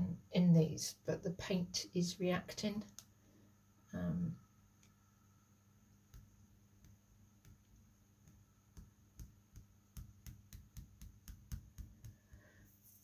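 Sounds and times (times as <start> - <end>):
fingertips tapping tile: 6.1 - 12.7.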